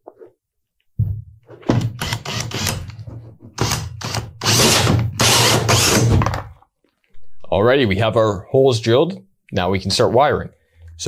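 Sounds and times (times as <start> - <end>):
hole saw grinding into drywall: 1.9 - 6.3
drill motor hum: 2.0 - 2.9, 3.6 - 6.2.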